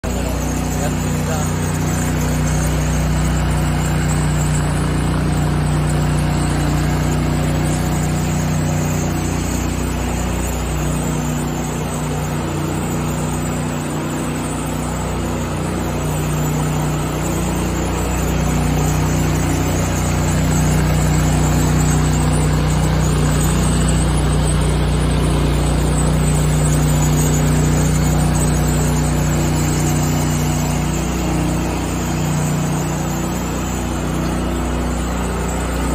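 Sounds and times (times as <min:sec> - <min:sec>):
grinder on concrete: 0:00.0 - 0:35.9
motor hum: 0:00.0 - 0:35.9.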